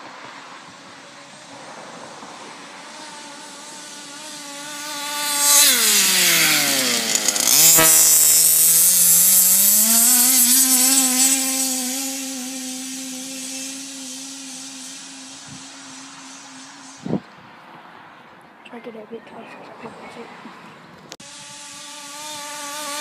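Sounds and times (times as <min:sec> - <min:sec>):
rc car engine buzzing: 0:02.4 - 0:17.2, 0:21.2 - 0:23.0.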